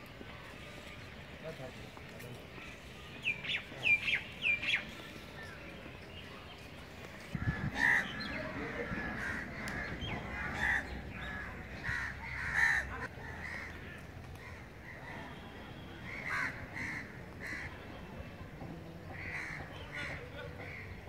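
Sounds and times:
crows cawing: 0:07.4 - 0:13.8, 0:16.1 - 0:17.7, 0:19.2 - 0:20.9.

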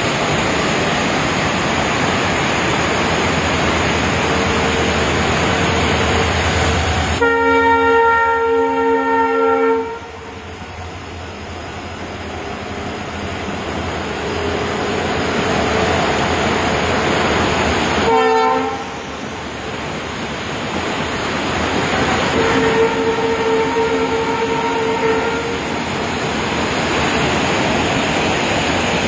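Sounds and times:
loud rushing noise: 0:00.0 - 0:07.2
train horn blasts: 0:07.2 - 0:10.4, 0:18.0 - 0:19.0, 0:21.9 - 0:25.6.

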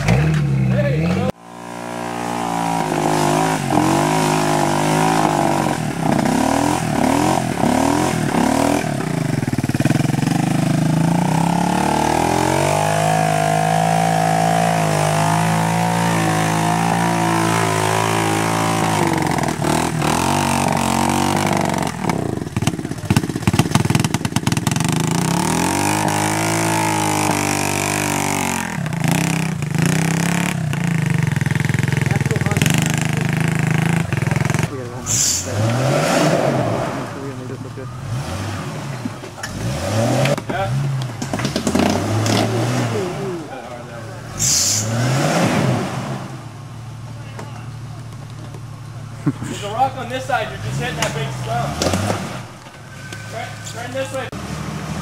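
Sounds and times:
atv engine revving: 0:00.0 - 0:55.0
tyres churning through mud: 0:00.0 - 0:55.0.

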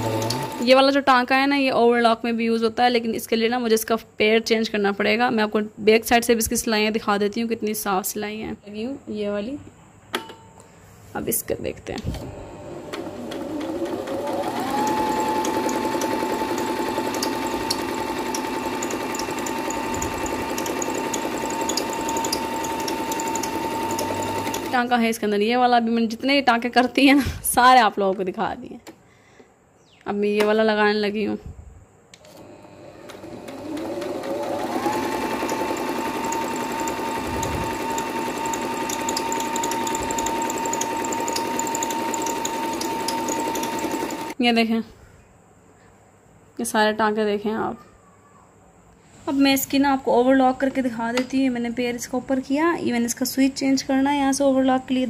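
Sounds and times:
electric sewing machine stitching: 0:00.0 - 0:00.8, 0:12.2 - 0:24.9, 0:32.2 - 0:44.4.

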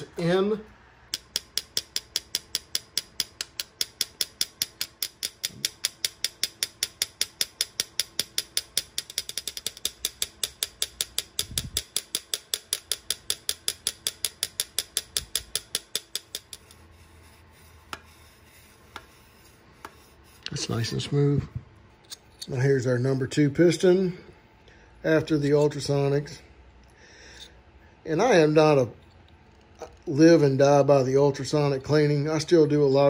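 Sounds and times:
small hammer tapping on metal: 0:01.1 - 0:16.8.

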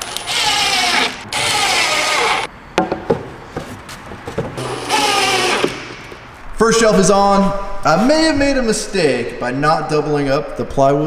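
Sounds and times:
cordless drill driving screws: 0:00.0 - 0:02.5, 0:04.6 - 0:06.0
knocks: 0:02.8 - 0:03.7.

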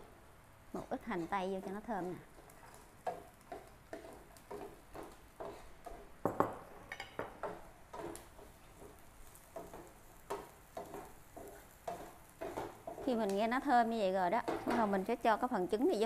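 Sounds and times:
food frying in oil: 0:00.0 - 0:16.0
spatula scraping frying pan: 0:00.8 - 0:06.2, 0:07.3 - 0:13.3.

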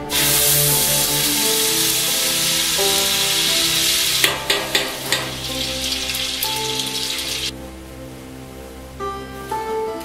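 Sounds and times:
onion sizzling in hot oil: 0:00.0 - 0:07.5
spoon knocking against pot: 0:04.2 - 0:05.8.

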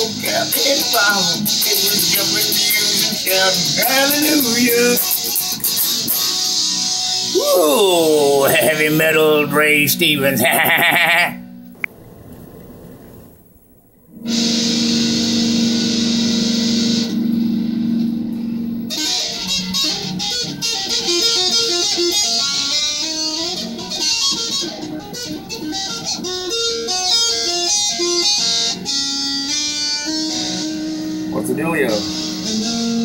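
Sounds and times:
electric guitar chord ringing: 0:00.0 - 0:07.3, 0:14.1 - 0:33.0.

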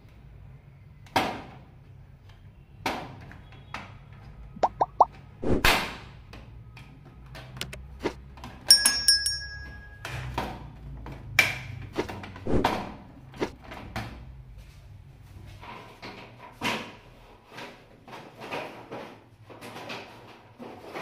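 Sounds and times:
short bell-like chime: 0:08.7 - 0:10.3.

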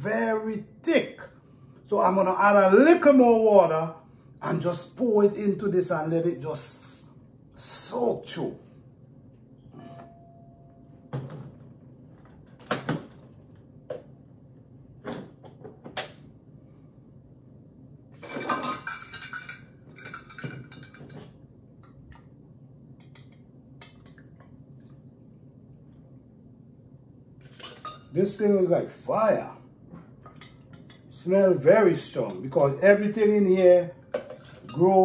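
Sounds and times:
kitchenware knocks and clinks: 0:18.2 - 0:21.4.

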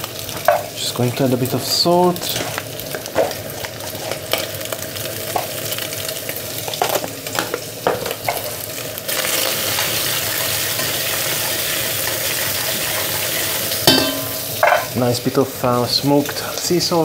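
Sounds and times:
prawns frying in hot fat: 0:00.0 - 0:17.0.

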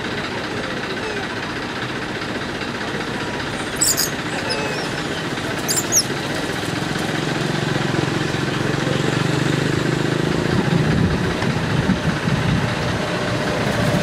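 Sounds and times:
motor engine idling: 0:00.0 - 0:14.0
noisy outdoor background: 0:00.0 - 0:14.0
short high squeaks: 0:03.5 - 0:06.2.

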